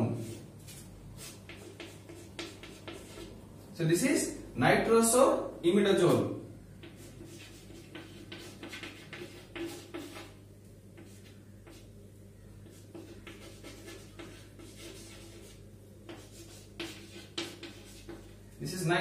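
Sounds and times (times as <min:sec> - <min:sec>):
chalk writing on a blackboard: 0:00.1 - 0:03.4, 0:06.8 - 0:12.0, 0:12.6 - 0:18.6.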